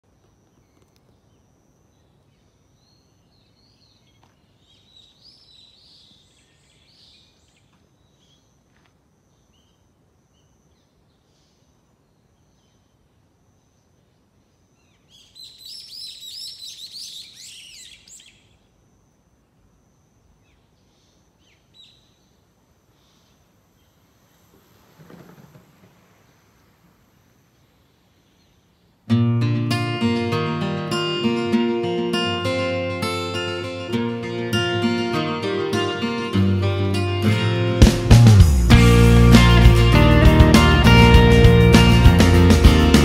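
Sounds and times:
faint outdoor background noise: 0:00.0 - 0:43.0.

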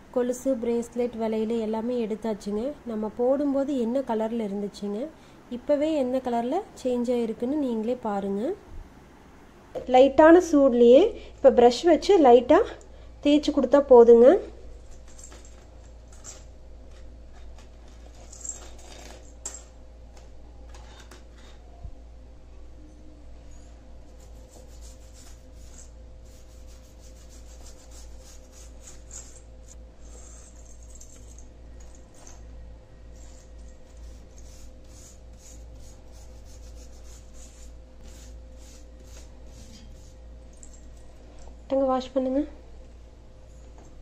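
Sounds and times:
chain rattling: 0:18.0 - 0:19.7, 0:30.0 - 0:32.4
metal jewelry clinking on stone: 0:18.1 - 0:19.7, 0:29.1 - 0:32.4
toothbrush scrubbing chain on stone: 0:24.2 - 0:31.3, 0:33.1 - 0:41.0.

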